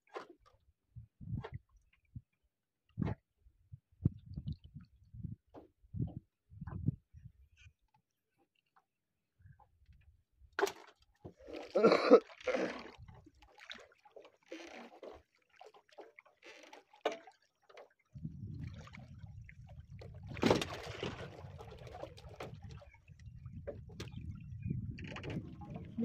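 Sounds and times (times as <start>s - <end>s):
knocks and rustles of fishing line: 0.0s - 0.6s, 13.2s - 18.0s, 20.0s - 26.0s
water sloshing against hull: 0.0s - 26.0s
water splash: 10.6s - 22.9s.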